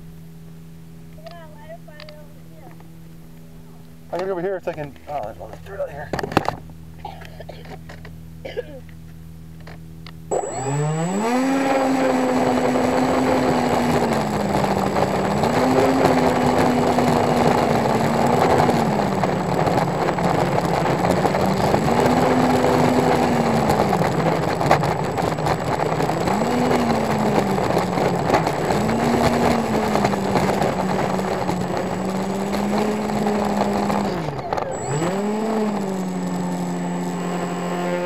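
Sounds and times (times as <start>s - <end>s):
electric fan motor droning: 0.0s - 38.0s
wheels rolling on pavement: 9.6s - 38.0s.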